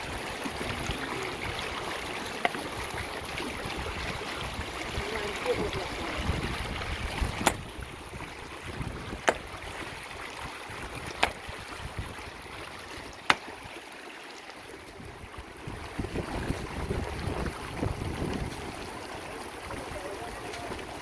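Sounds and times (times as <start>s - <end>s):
shallow river rushing: 0.0s - 21.0s
hammer striking boulder: 7.4s - 7.8s, 9.1s - 9.6s, 11.1s - 11.5s, 13.2s - 13.6s.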